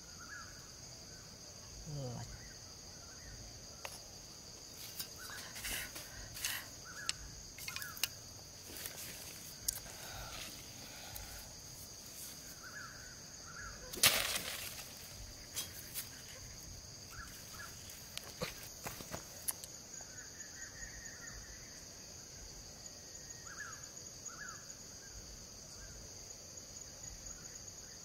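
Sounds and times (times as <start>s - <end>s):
high-pitched insect buzz: 1.1s - 21.8s
faint bird chirps: 5.0s - 8.1s
bamboo sticks clicking and tapping: 6.4s - 8.2s, 9.6s - 9.9s.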